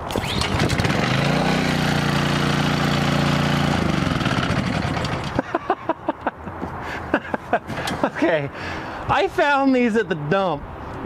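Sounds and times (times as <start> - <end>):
pressure washer engine winding down: 0.0 - 5.4.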